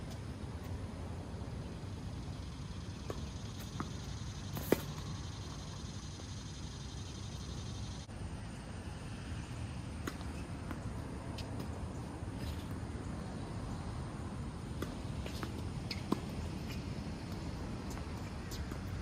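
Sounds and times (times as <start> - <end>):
racket hitting tennis ball: 3.0 - 5.1, 14.7 - 18.9.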